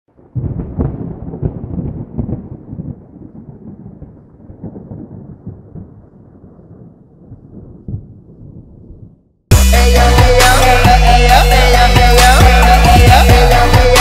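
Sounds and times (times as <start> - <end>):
thunder-like rumble: 0.2 - 9.3.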